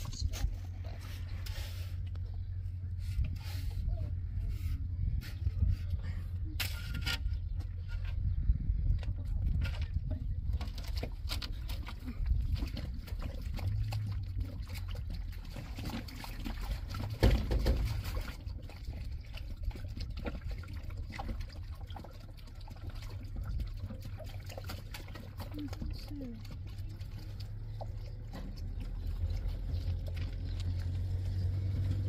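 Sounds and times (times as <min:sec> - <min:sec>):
low rumble: 0:00.0 - 0:22.2, 0:25.0 - 0:32.0.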